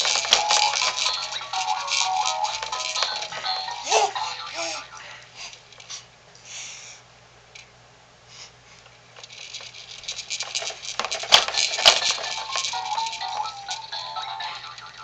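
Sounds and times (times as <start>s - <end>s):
baby bouncer rattling: 0.0s - 4.8s, 9.2s - 15.0s.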